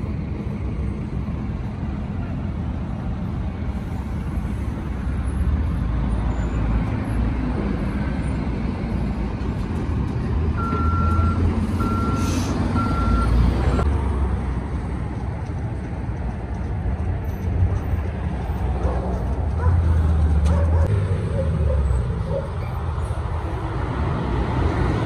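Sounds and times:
diesel engine rumbling: 0:00.0 - 0:25.0
reversing alarm beeps: 0:10.6 - 0:13.4.

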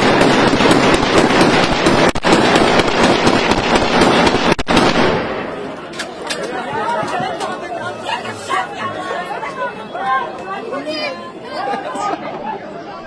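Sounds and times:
automatic gunfire bursts: 0:00.0 - 0:05.3.

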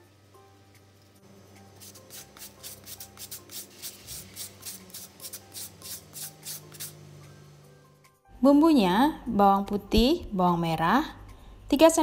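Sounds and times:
root grated on metal grater: 0:01.7 - 0:07.0.

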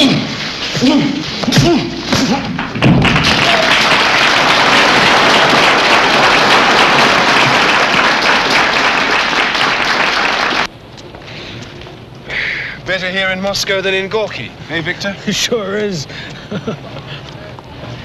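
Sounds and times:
crowd applauding: 0:02.5 - 0:10.7.

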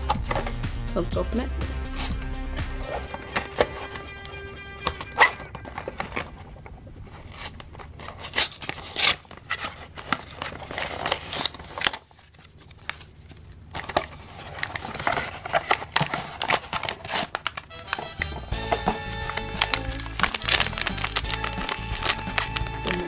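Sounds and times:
cardboard ripping and scraping: 0:07.1 - 0:13.1, 0:13.8 - 0:23.0.

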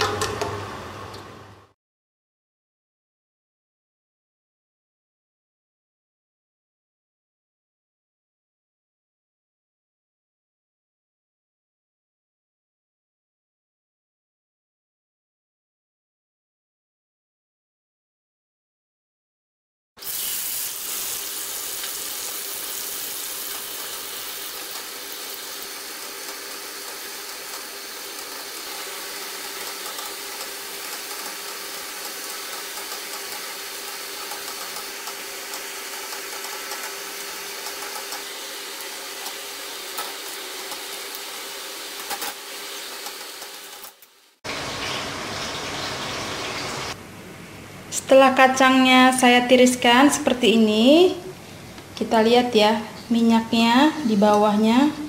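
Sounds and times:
peanuts deep-frying in oil: 0:20.0 - 0:47.0.

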